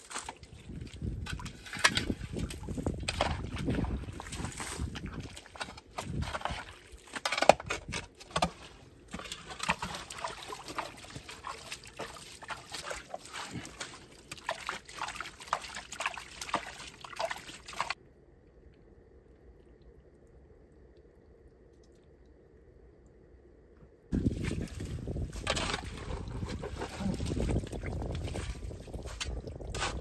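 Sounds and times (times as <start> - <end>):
digging clicks and scrapes: 0.0 - 18.0, 24.2 - 30.0
mud and water sloshing: 0.0 - 18.0, 24.1 - 30.0.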